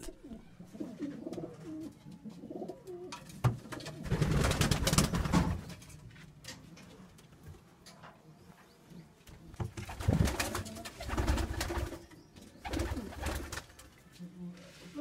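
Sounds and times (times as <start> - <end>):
pigeons cooing: 0.0 - 3.3, 9.8 - 13.6.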